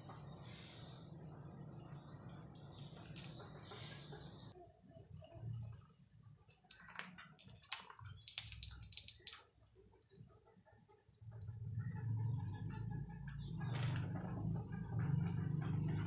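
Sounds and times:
sharp clicks and crackles: 6.5s - 10.3s.

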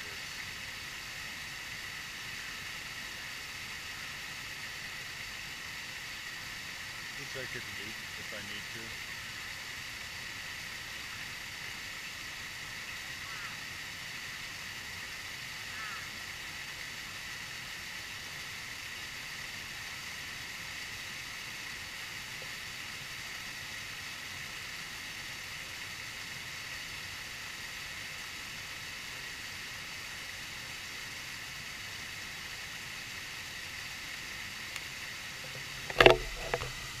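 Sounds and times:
water falling over rocks: 0.0s - 37.0s
loud knock and rustle: 35.9s - 36.8s.

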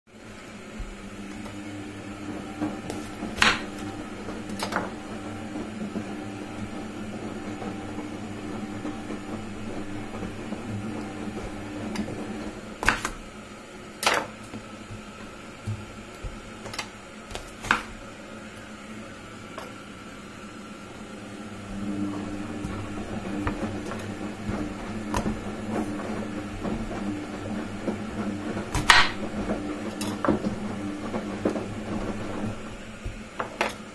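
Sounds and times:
low machine hum: 0.1s - 33.9s
knife cutting on wooden board: 15.7s - 18.0s.

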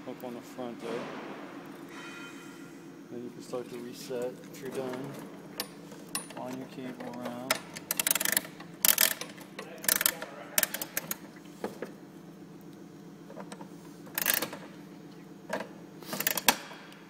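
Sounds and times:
metal mechanism clicks and clanks: 4.6s - 11.2s, 13.4s - 14.7s, 15.6s - 16.7s.

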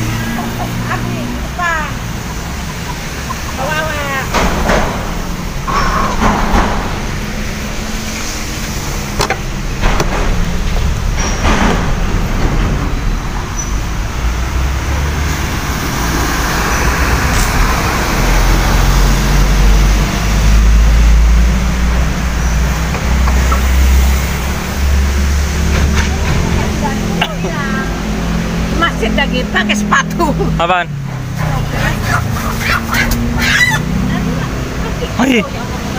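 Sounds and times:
tyres hissing on wet road: 0.0s - 6.2s, 6.9s - 9.8s, 13.5s - 25.7s
heavy truck engine rumble: 0.0s - 35.9s
sharp knocks: 2.1s - 8.0s, 8.9s - 13.6s.

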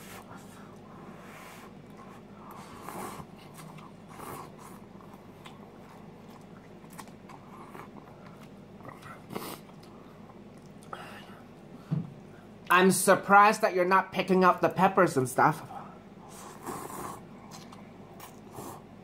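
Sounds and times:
chewing: 1.7s - 11.0s, 16.4s - 18.9s
slurping noodles: 16.3s - 17.6s, 18.2s - 18.9s.

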